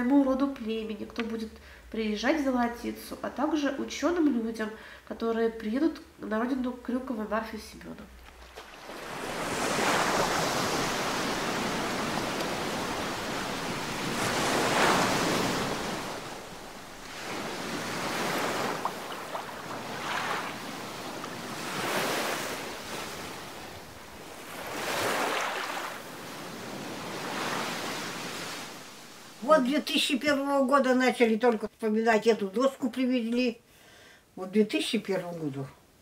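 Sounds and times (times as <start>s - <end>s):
sea waves breaking on beach: 8.3s - 29.4s.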